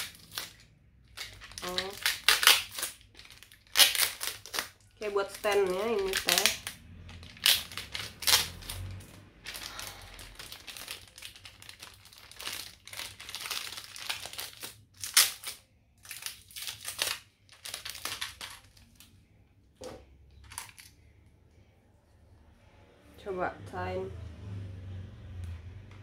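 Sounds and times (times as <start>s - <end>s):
plastic packaging crinkling: 0.0s - 19.2s, 20.4s - 21.1s.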